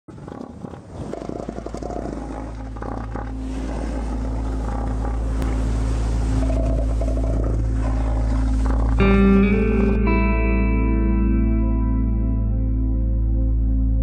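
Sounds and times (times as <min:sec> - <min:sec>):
elephant seal bellowing: 0:00.1 - 0:10.1.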